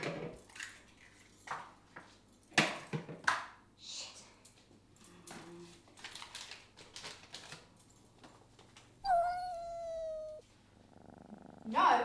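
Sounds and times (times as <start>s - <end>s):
packaging crinkling: 5.9s - 7.7s
cat meowing: 9.0s - 10.4s.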